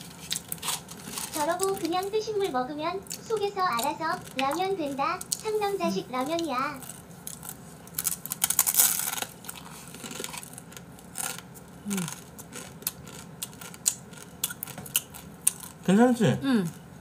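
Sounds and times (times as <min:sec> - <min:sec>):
dry noodles crunching: 0:00.0 - 0:02.1, 0:03.0 - 0:15.9.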